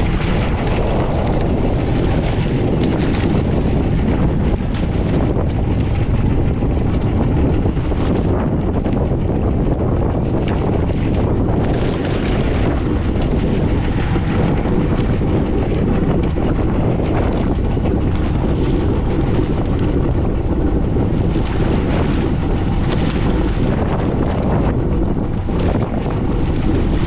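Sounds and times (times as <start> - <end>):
water rushing past: 0.0 - 6.1
boat engine running: 0.0 - 27.0
wind buffeting microphone: 0.0 - 27.0.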